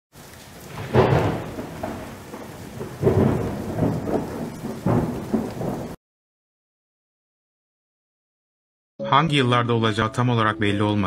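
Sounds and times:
rain hissing: 0:00.1 - 0:06.0
thunder rolling: 0:00.6 - 0:06.0.

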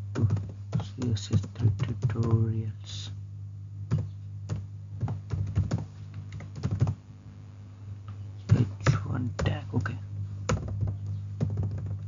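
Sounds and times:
steady low hum: 0:00.0 - 0:12.0
typing on keyboard: 0:00.2 - 0:02.4, 0:03.9 - 0:07.0, 0:10.5 - 0:12.0.

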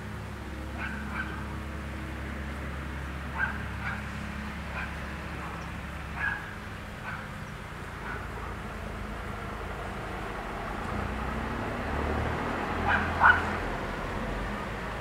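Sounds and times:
distant dog barking: 0:00.8 - 0:01.5, 0:03.3 - 0:05.6, 0:06.2 - 0:07.4, 0:08.0 - 0:08.6, 0:12.8 - 0:13.6.

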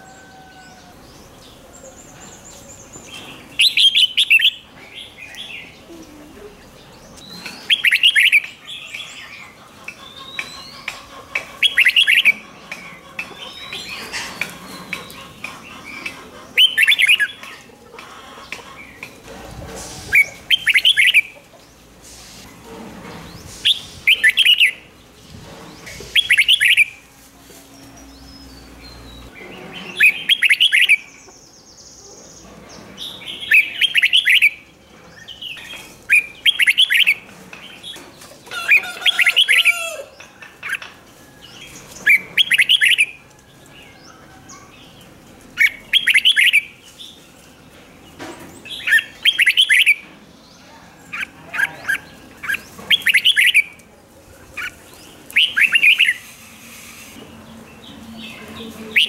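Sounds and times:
bird warbling song: 0:06.8 - 0:19.2, 0:23.2 - 0:27.0, 0:27.8 - 0:43.2, 0:45.6 - 0:47.5, 0:48.1 - 0:53.8, 0:54.5 - 0:56.4.

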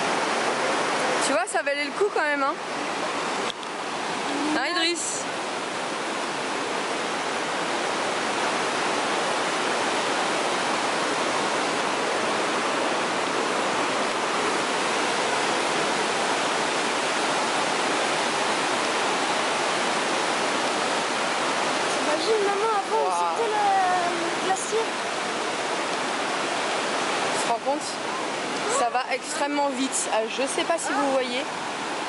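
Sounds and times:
white-water rapids rushing: 0:00.0 - 0:32.0.

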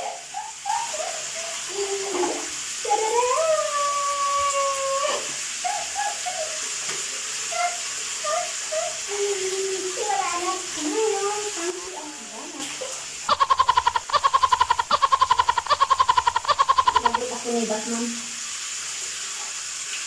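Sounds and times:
woman laughing: 0:13.4 - 0:17.4.

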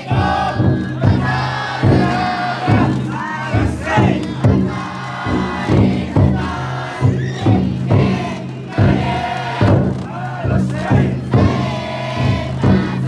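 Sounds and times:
crowd chanting and shouting: 0:00.0 - 0:13.0
heavy drum strokes: 0:00.0 - 0:13.0.

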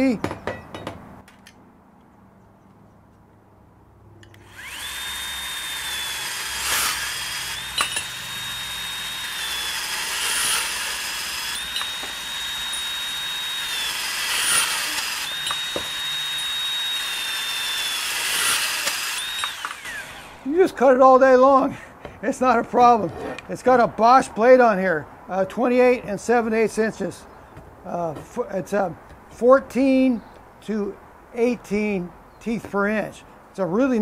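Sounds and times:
band saw motor whine: 0:04.2 - 0:21.1.

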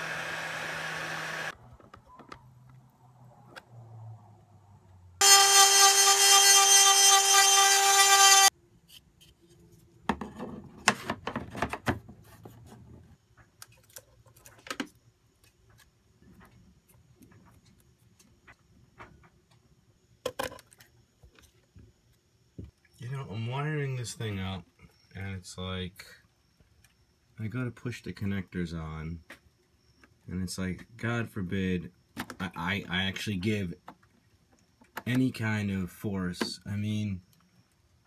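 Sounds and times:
loud buzzing tone: 0:00.0 - 0:01.5, 0:05.2 - 0:08.5.

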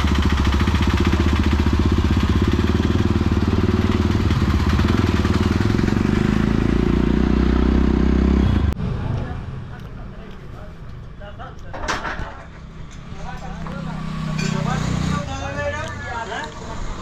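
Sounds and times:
motorcycle engine running: 0:00.0 - 0:08.8.

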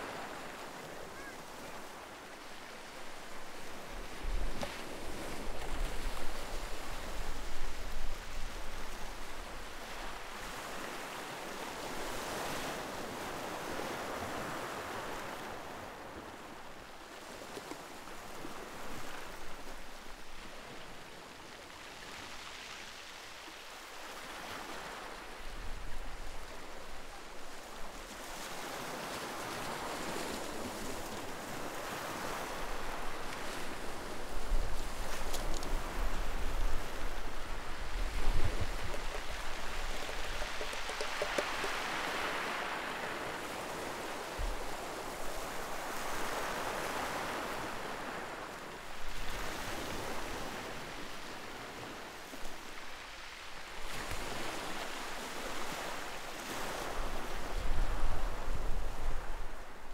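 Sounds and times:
waves breaking on shore: 0:00.0 - 0:59.9
wind buffeting microphone: 0:35.7 - 0:42.0.

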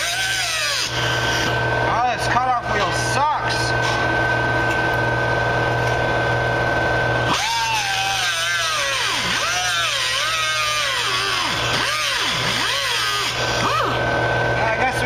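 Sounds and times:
grinder cutting sheet steel: 0:00.0 - 0:01.6, 0:07.3 - 0:14.0
angle grinder whining: 0:00.0 - 0:15.0.

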